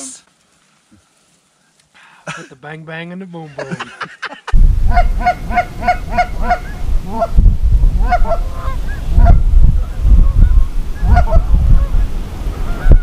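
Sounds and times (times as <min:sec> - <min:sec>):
wind rumble on microphone: 0:04.6 - 0:13.0
geese honking and clucking: 0:04.9 - 0:07.4, 0:08.0 - 0:13.0.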